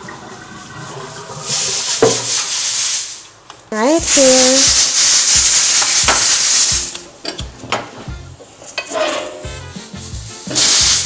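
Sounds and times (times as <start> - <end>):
loud hiss: 1.4 - 7.0, 9.7 - 11.0.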